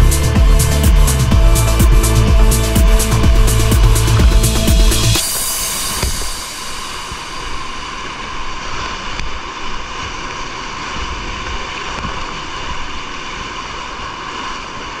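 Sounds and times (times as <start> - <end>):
low thumps against camera: 0.0 - 5.3.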